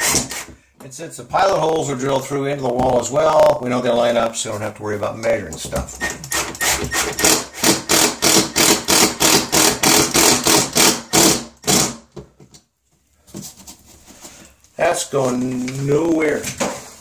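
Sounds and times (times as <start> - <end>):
impact driver rattling: 6.0 - 12.0.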